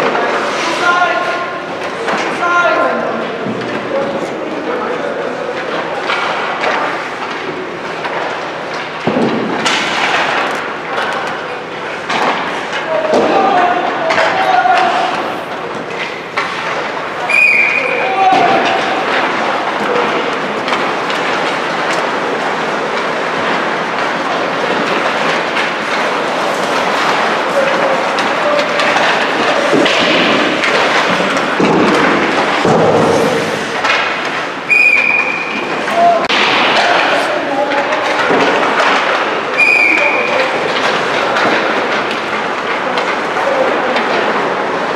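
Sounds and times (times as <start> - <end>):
clatter of skates sticks and pucks: 0.0 - 44.9
whistle blast: 17.2 - 18.0, 34.7 - 35.5, 39.6 - 40.3.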